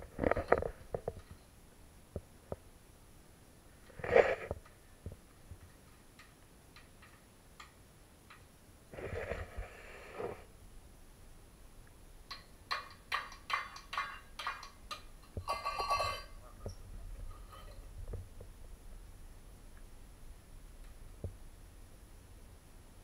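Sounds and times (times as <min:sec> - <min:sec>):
metal bowl clattering on tile floor: 0:12.7 - 0:17.9.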